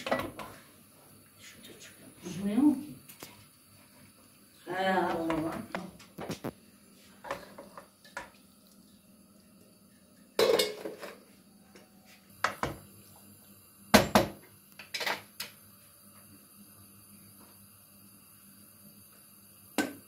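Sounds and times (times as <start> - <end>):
metal kitchenware clanking: 10.4 - 11.1.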